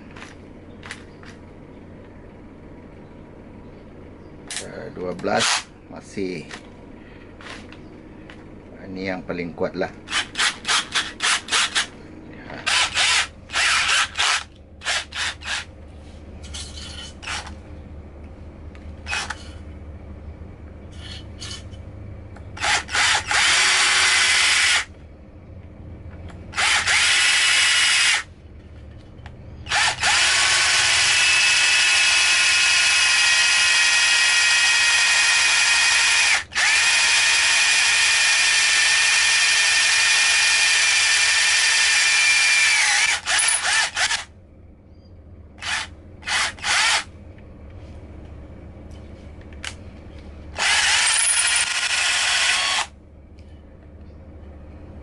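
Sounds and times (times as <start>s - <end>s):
cordless drill drilling wood: 12.7s - 15.7s, 22.6s - 24.9s, 26.5s - 28.3s, 29.7s - 44.2s, 45.6s - 47.1s, 50.6s - 52.9s.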